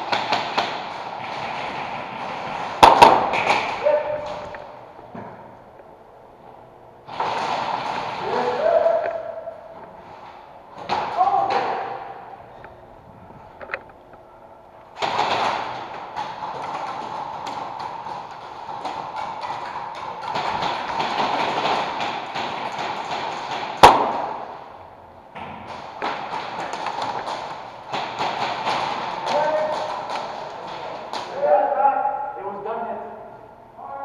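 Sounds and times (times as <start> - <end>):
sharp crack: 0.0 - 4.7, 19.9 - 24.8.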